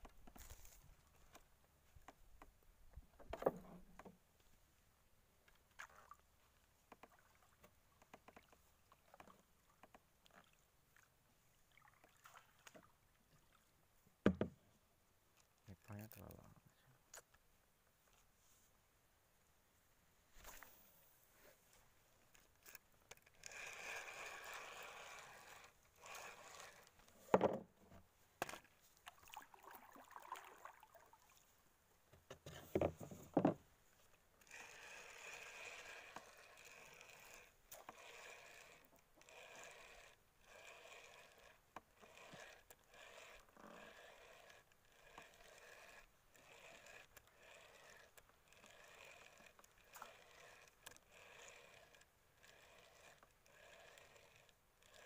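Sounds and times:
fishing reel gears grinding: 22.6s - 27.2s, 34.4s - 55.0s.

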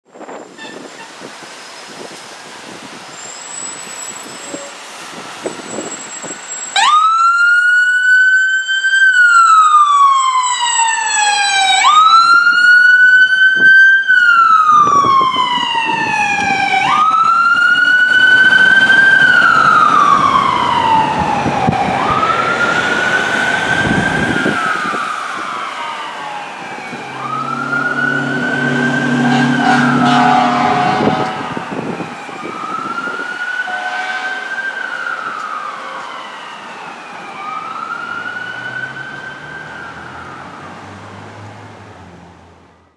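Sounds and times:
fire engine siren wailing: 1.9s - 41.8s
low steady horn: 26.9s - 32.0s, 33.6s - 34.7s.

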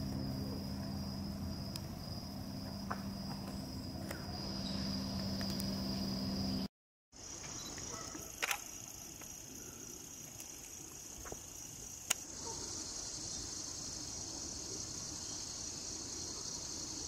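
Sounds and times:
high-pitched insect chorus: 0.0s - 17.0s
sharp clicks: 8.4s - 8.8s.

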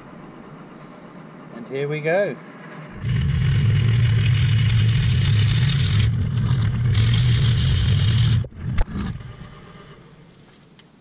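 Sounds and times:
drill bit cutting wood hiss: 3.0s - 10.0s
wood lathe humming: 3.0s - 10.0s.

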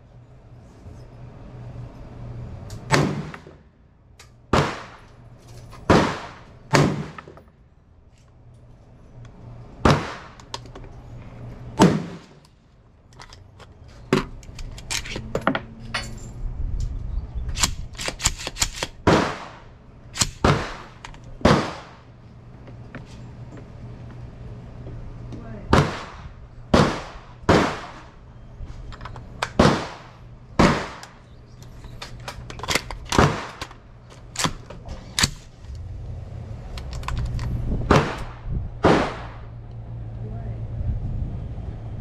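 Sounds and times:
rifle gunshots with echo: 25.7s - 28.1s, 37.9s - 39.5s.

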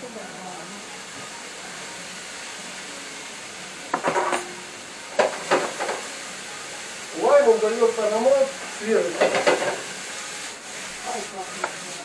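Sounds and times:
cabbage sizzling in a pan: 0.0s - 12.0s
utensil clattering against pan: 5.2s - 6.1s, 9.1s - 9.8s.

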